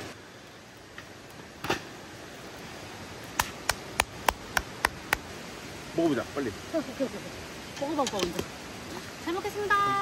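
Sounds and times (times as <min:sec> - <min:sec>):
hand clapping: 0:03.4 - 0:05.2.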